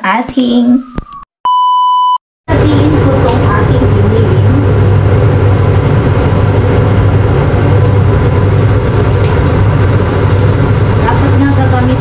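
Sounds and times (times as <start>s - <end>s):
motor or fan droning: 2.5s - 12.0s.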